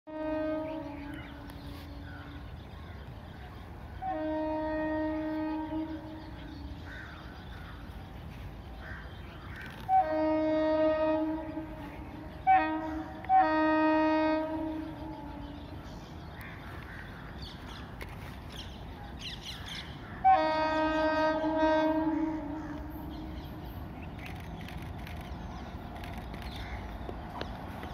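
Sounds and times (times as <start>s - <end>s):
locomotive horn blasts: 0.1s - 2.1s, 4.0s - 6.8s, 9.8s - 15.8s, 20.2s - 23.4s.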